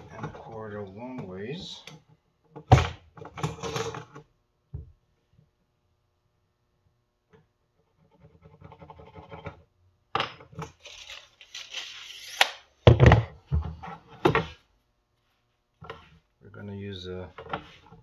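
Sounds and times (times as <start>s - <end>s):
tape measure retracting with click: 10.8s - 12.7s
tools thunking on plywood: 12.8s - 14.6s.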